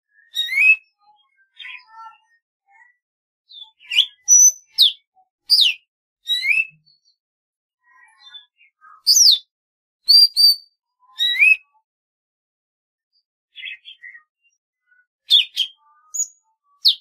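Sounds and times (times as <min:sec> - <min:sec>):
bird singing whistled notes: 0:00.1 - 0:01.9, 0:03.5 - 0:07.2, 0:08.0 - 0:11.8, 0:13.6 - 0:17.0.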